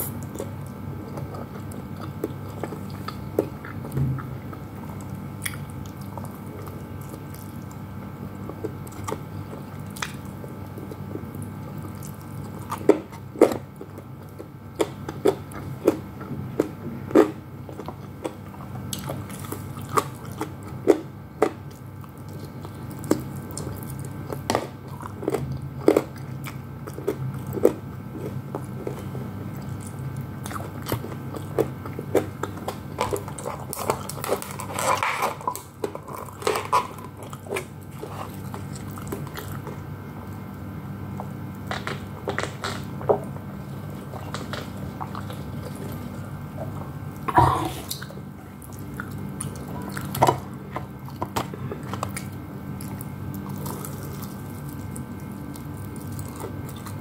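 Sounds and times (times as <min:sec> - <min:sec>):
crunchy chewing of fried chicken: 0:00.0 - 0:57.0
steady low hum: 0:00.0 - 0:57.0.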